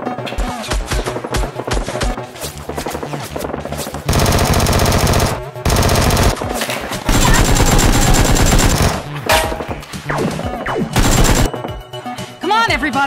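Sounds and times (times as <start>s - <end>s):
automatic gunfire bursts: 4.1s - 6.5s, 7.1s - 9.1s, 11.0s - 11.5s.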